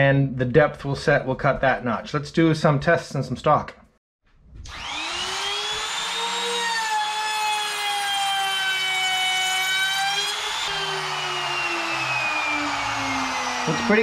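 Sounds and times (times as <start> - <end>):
router motor winding down: 4.6 - 14.0
router whining while cutting wood: 4.6 - 14.0.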